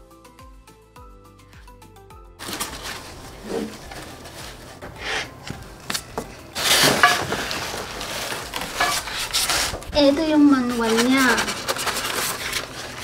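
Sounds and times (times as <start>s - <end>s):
foam and plastic wrap rustling: 2.4s - 13.0s
boards knocking: 4.7s - 7.9s.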